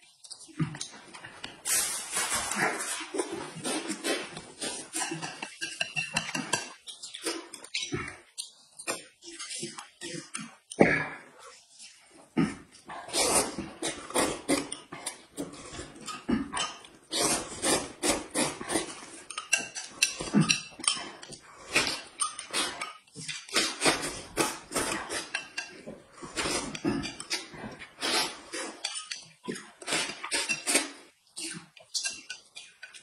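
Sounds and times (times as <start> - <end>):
chewing and slurping: 0.0 - 33.0
utensils clinking against bowls: 1.7 - 8.0, 15.4 - 33.0.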